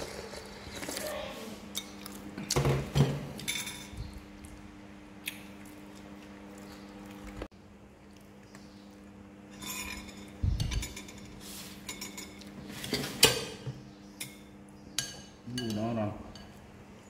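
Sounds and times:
spoons clinking on ceramic bowls: 9.5 - 12.5, 15.0 - 16.6.

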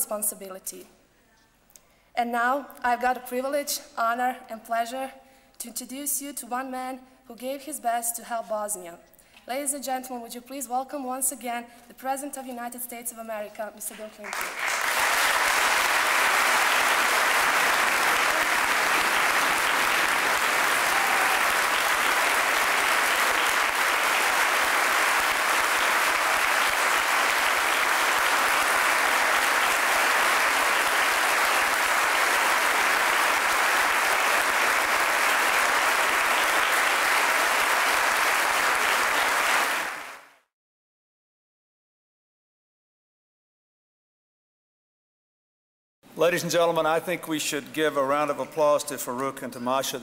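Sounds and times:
large audience applauding: 14.2 - 40.4.

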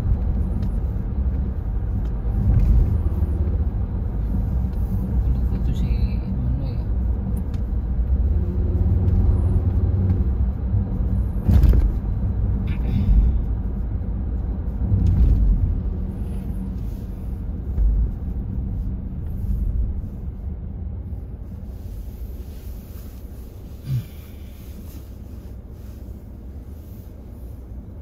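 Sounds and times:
car cabin road rumble: 0.0 - 28.0.

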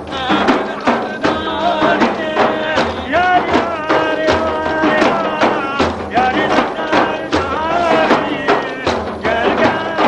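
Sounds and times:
frame drums beating: 0.0 - 10.0
men chanting: 0.0 - 10.0.

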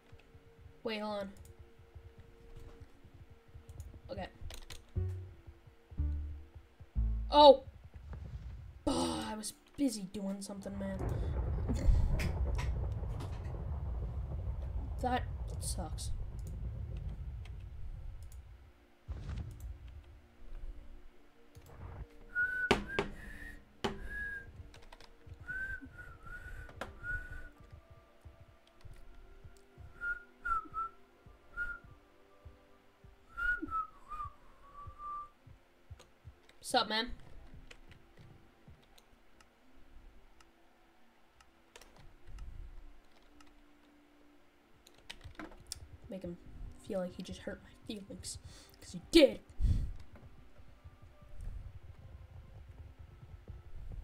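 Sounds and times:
keyboard keys clicking: 1.4 - 5.2
dull low thump: 1.5 - 8.9, 10.7 - 20.9
sharp clicks: 16.3 - 18.4, 19.1 - 20.0
person whistling: 22.3 - 24.6, 25.4 - 27.6, 29.9 - 32.0, 33.3 - 35.4.

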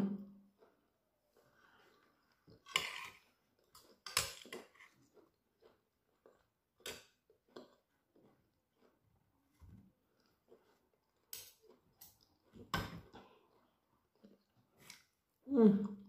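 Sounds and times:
knife scraping a plate: 2.6 - 3.2.

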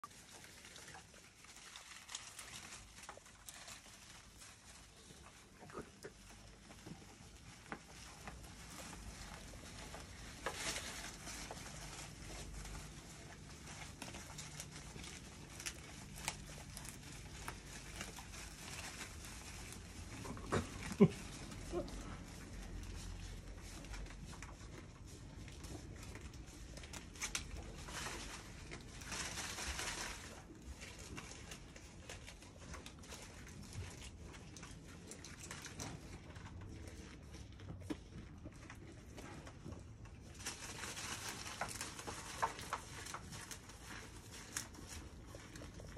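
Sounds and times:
goat chewing leaves: 0.0 - 45.9
leaves rustling and tearing: 0.0 - 45.9
sharp snaps and crunches: 0.0 - 45.9.

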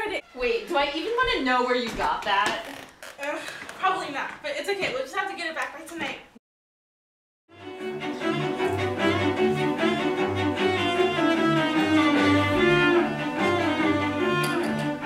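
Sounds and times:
bowed strings music: 7.5 - 15.0.

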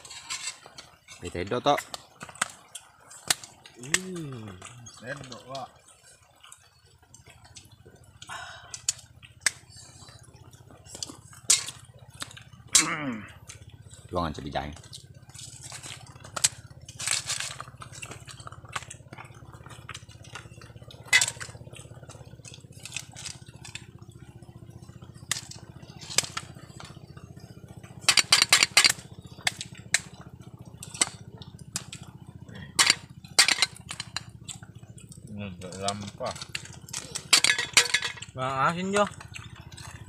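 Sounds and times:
low steady hum: 0.0 - 40.0
shells clinking against metal bowl: 21.0 - 21.6, 28.0 - 29.0, 32.6 - 34.4, 35.6 - 38.4.

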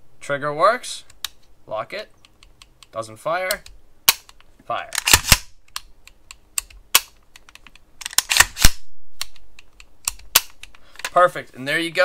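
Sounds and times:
rifle hammer snapping: 3.5 - 4.4, 5.0 - 10.8.

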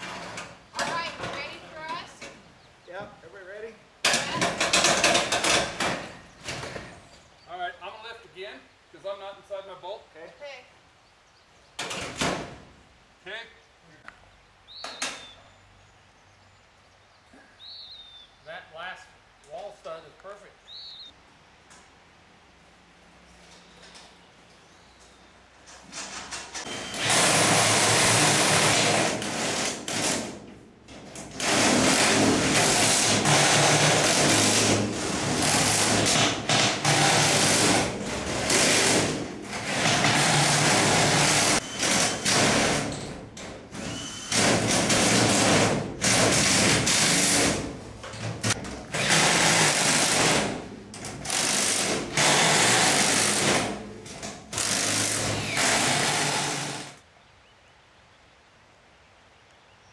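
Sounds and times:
impact drivers hammering rattle: 4.0 - 6.9, 25.9 - 57.0.

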